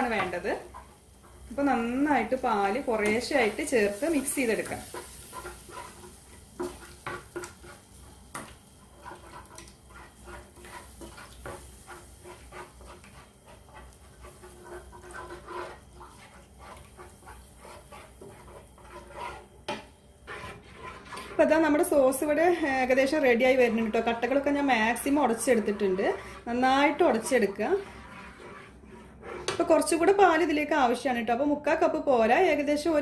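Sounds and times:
wooden spatula scraping pan: 0.0 - 30.2.

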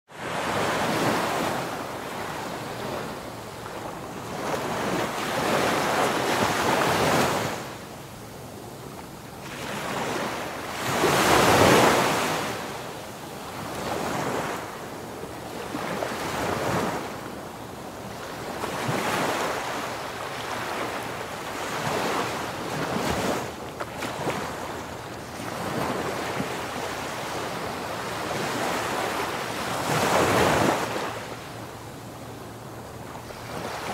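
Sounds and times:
waves rushing along ship hull: 9.5 - 14.8, 15.6 - 33.9.

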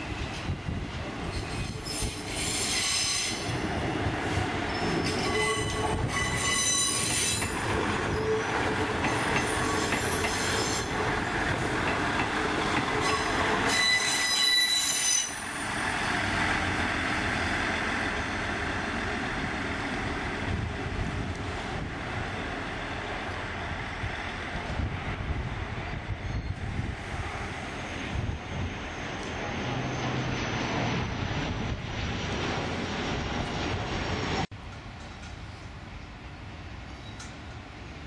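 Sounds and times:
train rolling rumble: 0.0 - 38.0
train wheels squealing: 1.3 - 3.5, 4.6 - 10.9, 13.0 - 15.5, 25.9 - 26.6, 36.9 - 37.5.

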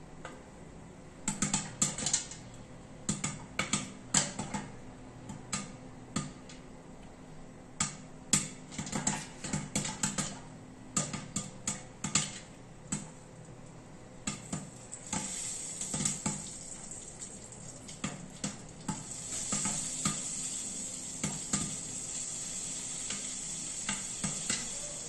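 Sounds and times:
popcorn popping in a pot: 1.2 - 6.6, 7.8 - 25.0.

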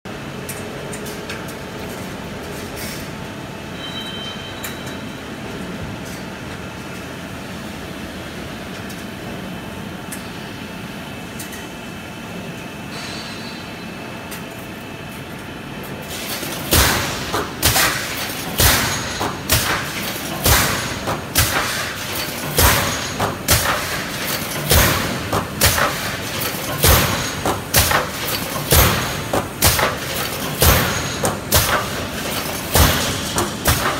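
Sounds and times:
workshop machine hum: 0.1 - 33.9
pneumatic welding heads clacking: 16.1 - 33.9.

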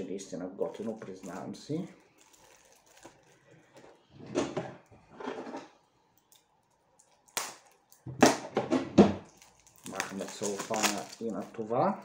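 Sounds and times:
plastic-wrapped case rustling: 0.6 - 3.9, 9.2 - 12.0
cellophane wrap crinkling: 0.6 - 4.0, 6.2 - 8.1, 9.2 - 12.0.

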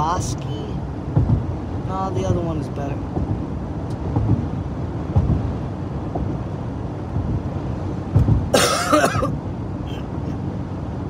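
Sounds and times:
car road and engine rumble: 0.0 - 11.0
person coughing: 8.5 - 10.0.

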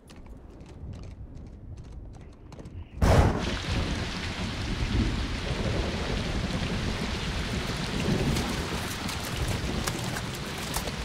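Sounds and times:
thunder rumbling: 3.0 - 11.0
heavy rain pouring: 3.4 - 11.0.

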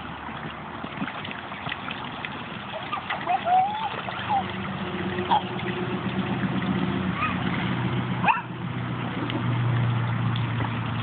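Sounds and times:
high yelps: 2.8 - 4.5, 5.2 - 5.5, 7.2 - 7.4.

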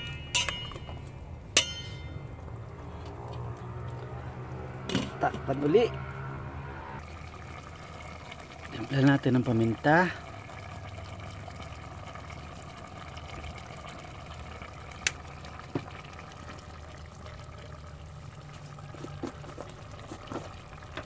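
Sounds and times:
pot boiling: 0.0 - 6.0, 6.9 - 21.0.

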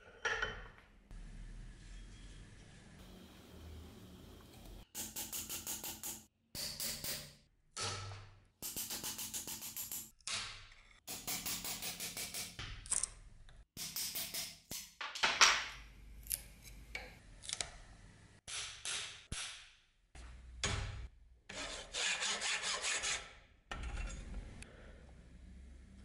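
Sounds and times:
file rasping on steel: 21.5 - 23.4.

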